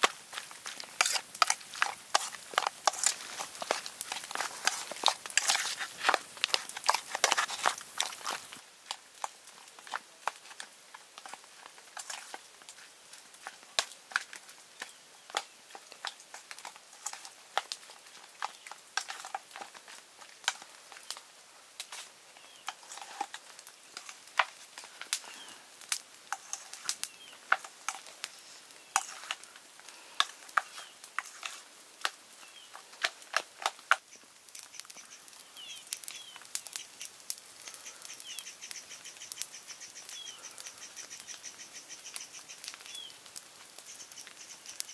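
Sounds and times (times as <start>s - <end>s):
metal spoon scraping steel bowl: 0.9s - 8.4s.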